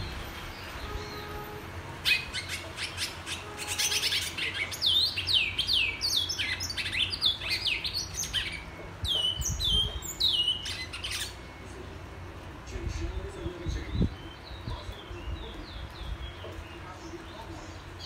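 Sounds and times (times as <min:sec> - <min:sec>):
finch whistling song: 0:02.0 - 0:11.8.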